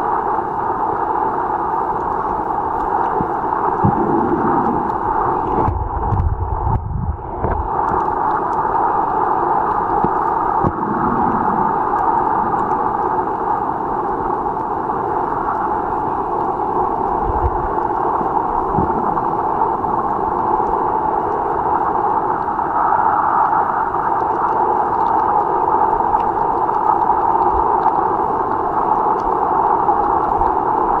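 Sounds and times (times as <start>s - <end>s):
muffled underwater rushing: 0.0s - 31.0s.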